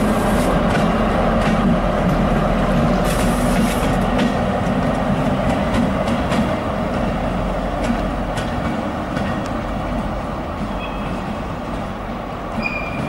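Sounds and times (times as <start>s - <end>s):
diesel locomotive engine drone: 0.0s - 13.0s
light rail noise: 0.0s - 13.0s.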